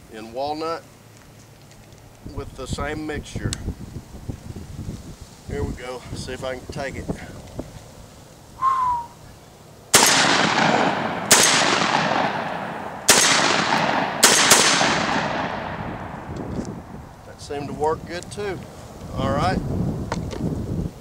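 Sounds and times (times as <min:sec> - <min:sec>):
shotgun shots with echo: 0:10.0 - 0:16.3.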